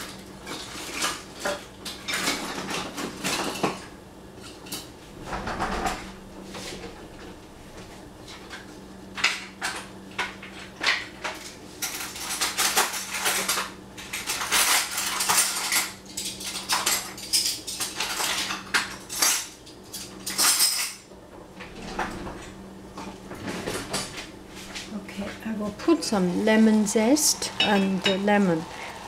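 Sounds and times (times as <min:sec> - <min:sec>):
utensils and dishes clinking: 0:00.0 - 0:04.9, 0:09.2 - 0:22.5, 0:25.8 - 0:28.9.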